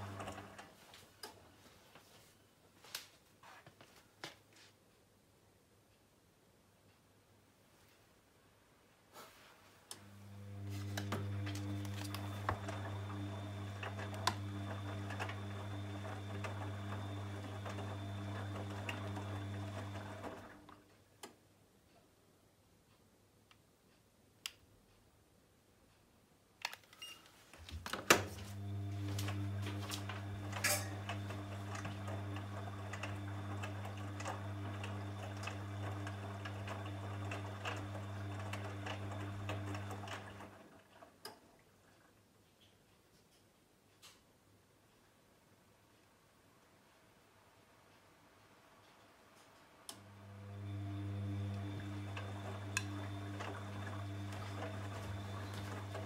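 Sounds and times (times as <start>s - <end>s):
washing machine drum motor humming: 0.0s - 0.8s, 10.0s - 20.8s, 27.8s - 42.1s, 49.9s - 56.0s.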